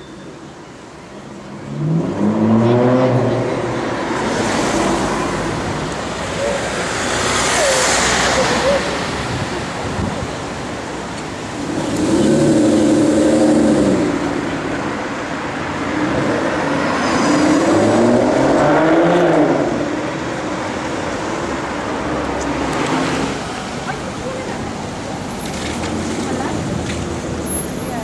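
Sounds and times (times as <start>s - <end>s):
city traffic noise: 0.0s - 28.0s
car engine accelerating hard: 11.5s - 14.6s, 15.8s - 20.2s.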